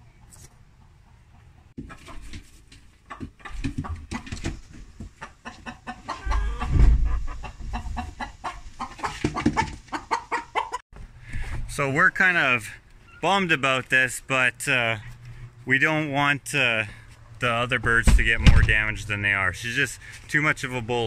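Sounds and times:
hen clucking and squawking: 0:05.2 - 0:10.8
heavy low thump: 0:06.3 - 0:07.3, 0:17.8 - 0:19.0.

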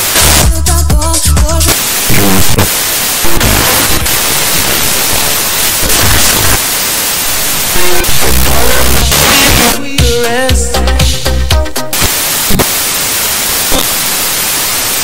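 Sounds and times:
radio static hiss: 0:00.0 - 0:00.7, 0:01.5 - 0:10.5, 0:11.8 - 0:15.0
snatches of radio music: 0:00.0 - 0:15.0.

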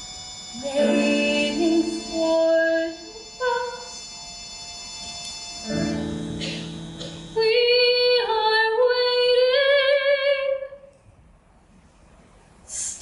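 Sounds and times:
low held accompaniment chord: 0:00.0 - 0:09.0
woman singing a slow ballad: 0:00.6 - 0:03.9, 0:07.4 - 0:10.7.

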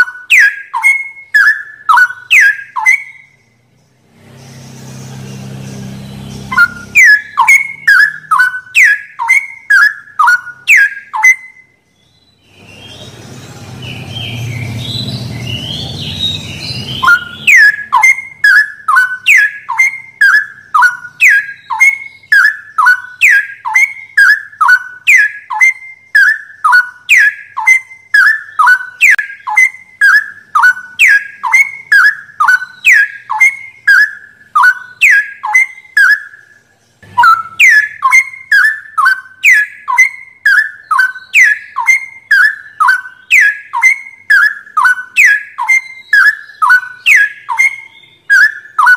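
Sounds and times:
bird singing whistled notes: 0:00.0 - 0:48.9
low hum: 0:03.9 - 0:08.3.

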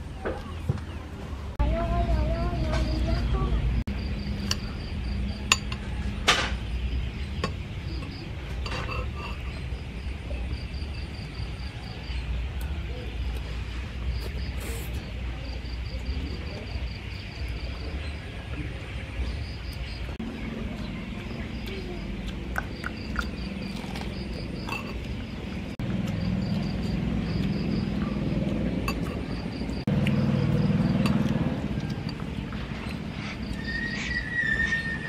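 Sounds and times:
insects chirping: 0:01.6 - 0:35.0
chewing: 0:20.7 - 0:33.7.

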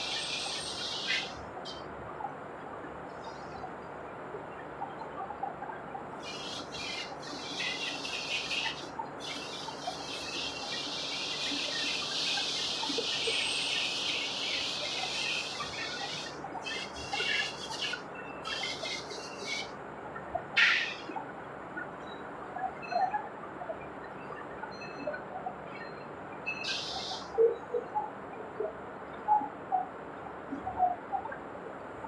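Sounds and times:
high hiss: 0:06.2 - 0:19.7, 0:26.6 - 0:27.2.

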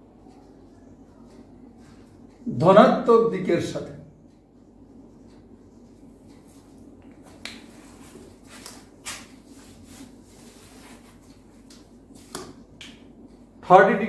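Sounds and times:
eraser rubbing whiteboard: 0:07.8 - 0:11.4.

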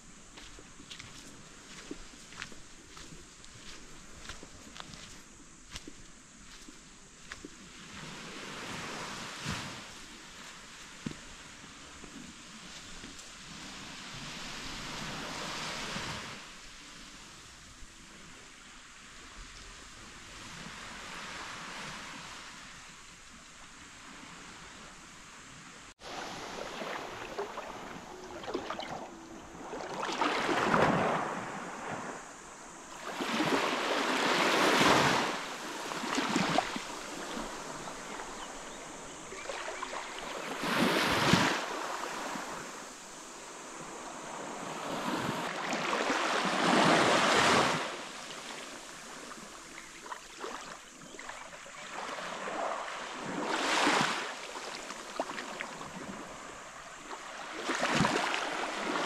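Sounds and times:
sea waves washing: 0:23.9 - 0:50.9.

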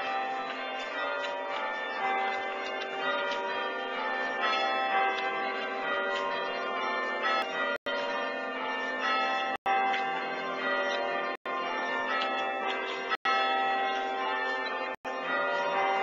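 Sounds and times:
church bells chiming: 0:00.0 - 0:16.0.

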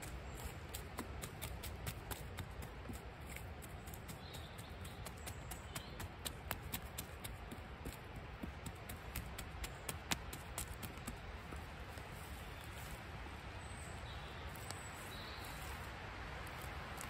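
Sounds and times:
sharp little clicks and taps: 0:00.0 - 0:12.1.

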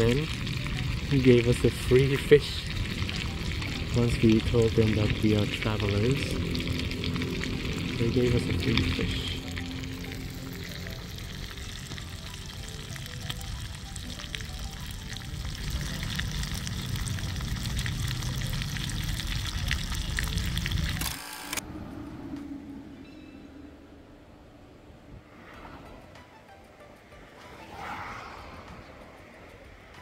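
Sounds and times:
fish frying with crackles: 0:00.0 - 0:21.0.

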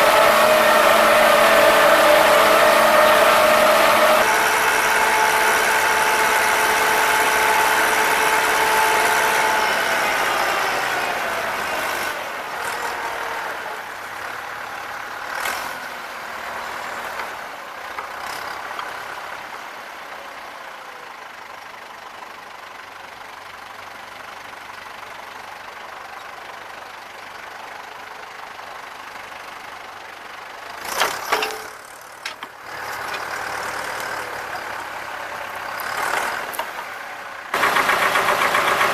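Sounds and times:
tractor engine running: 0:00.0 - 0:38.9
plough metallic clanks: 0:30.8 - 0:34.0.

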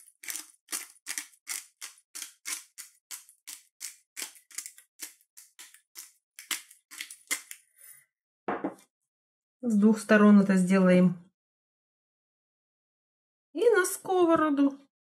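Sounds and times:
pepper grinder cracking peppercorns: 0:00.0 - 0:07.6.

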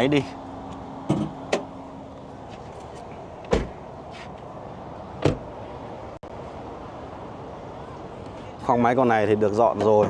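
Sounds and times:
car latch clunks: 0:03.4 - 0:03.8, 0:05.2 - 0:05.5.

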